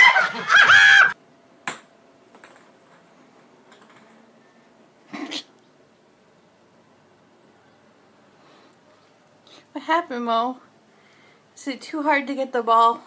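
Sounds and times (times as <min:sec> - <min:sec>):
high-pitched laughter: 0:00.0 - 0:01.2.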